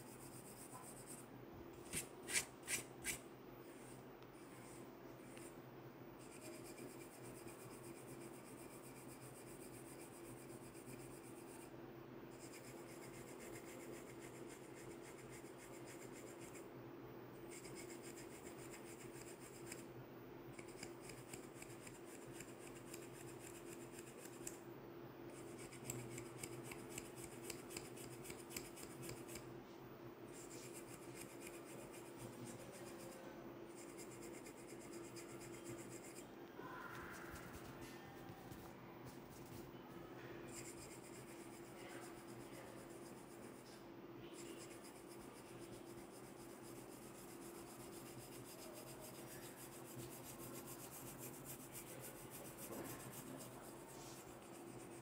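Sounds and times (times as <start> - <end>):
comb scratching through hair: 1.8 - 3.2, 20.6 - 24.6, 25.4 - 29.4, 30.4 - 33.2, 33.8 - 36.3, 40.5 - 43.7, 44.4 - 55.0
fingertips rubbing hair: 30.4 - 36.3, 44.4 - 55.0.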